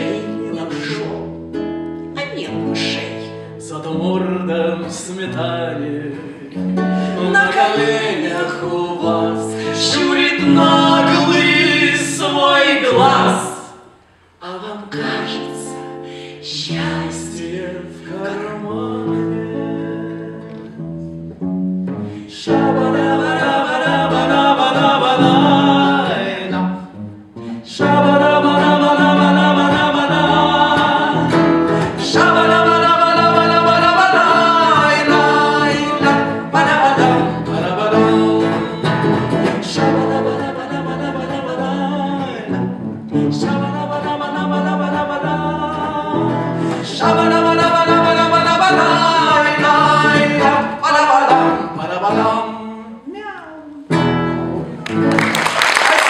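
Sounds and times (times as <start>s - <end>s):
man and woman singing duet: 0.0s - 1.4s, 2.4s - 20.8s, 22.0s - 54.0s
acoustic guitar: 0.0s - 55.9s.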